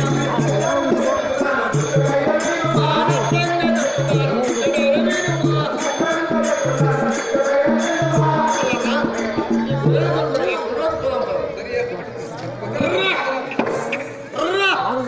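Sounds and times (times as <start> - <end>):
sharp percussion strokes: 0.0 - 10.7.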